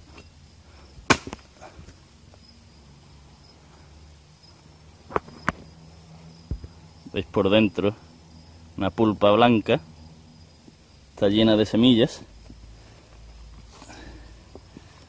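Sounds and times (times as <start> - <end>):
high insect drone: 0.0 - 15.0
machete chopping woody shell: 1.0 - 1.5.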